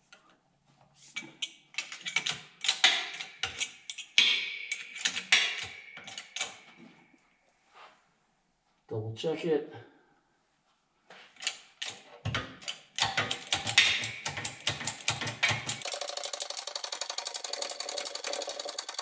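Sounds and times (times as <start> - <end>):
metallic ratcheting chatter: 15.8 - 19.0.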